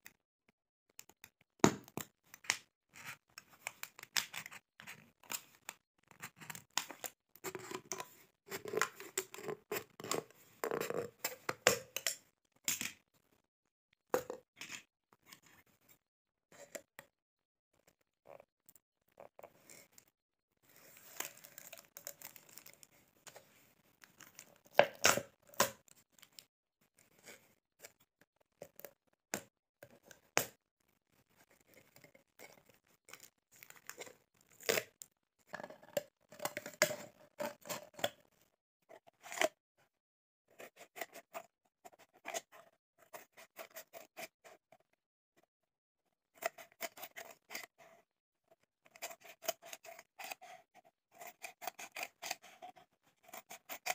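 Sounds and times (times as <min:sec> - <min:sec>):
plastic crackling: 0:20.9 - 0:22.9.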